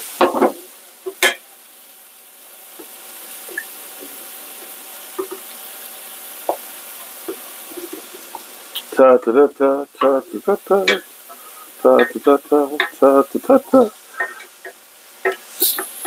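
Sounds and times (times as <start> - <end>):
faint frying sizzle: 0.0 - 16.0
spoon knocking against pot: 10.8 - 11.1, 14.2 - 15.9
spoon stirring in a pot: 14.2 - 15.9.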